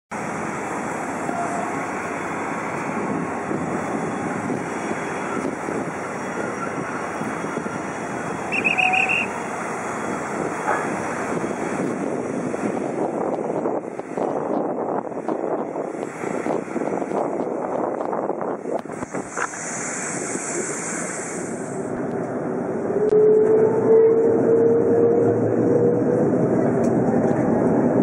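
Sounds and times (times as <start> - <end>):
quick high-pitched beeps: 8.5 - 9.3.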